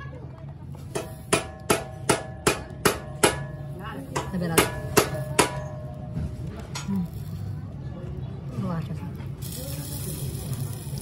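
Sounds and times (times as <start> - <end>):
hammer striking metal: 0.9 - 6.3.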